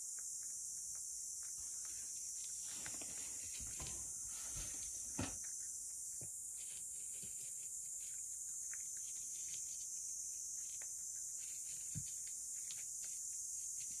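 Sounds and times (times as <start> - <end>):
cat chewing and licking: 5.4 - 14.0.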